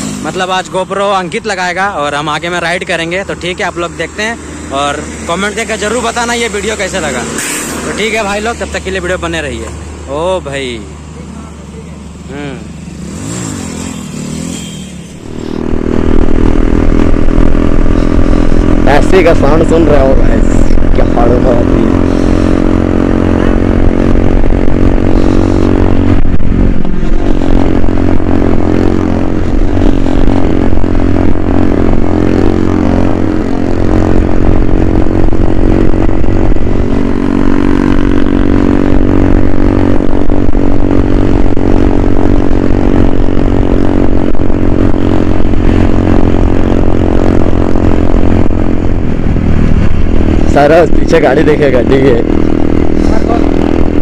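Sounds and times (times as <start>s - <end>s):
motorcycle engine cruising: 0.0s - 54.0s.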